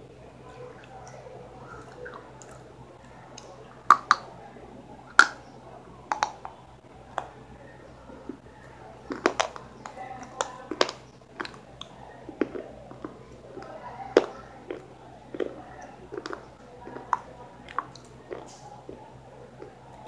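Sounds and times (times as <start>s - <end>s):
food crunching: 0.5s - 20.0s
mouth smacks: 0.7s - 4.3s, 6.0s - 7.4s, 9.1s - 19.8s.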